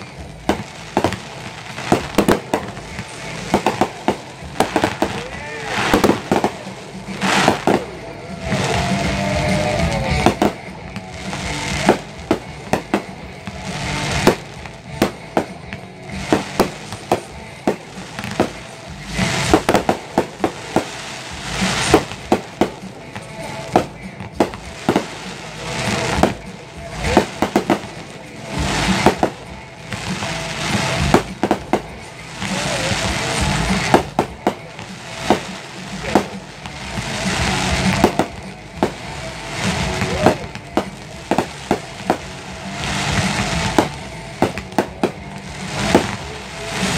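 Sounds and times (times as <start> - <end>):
firework bursts: 0.0 - 46.9
music: 0.0 - 46.9.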